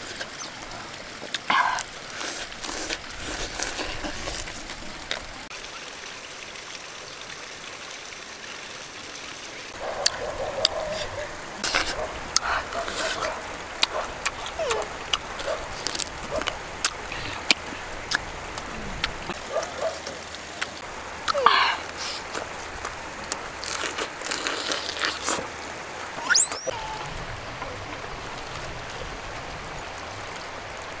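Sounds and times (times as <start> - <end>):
stream rushing: 0.0 - 31.0
lip smacks and chewing: 1.2 - 5.3, 10.0 - 25.5
rising squeak: 26.2 - 27.1.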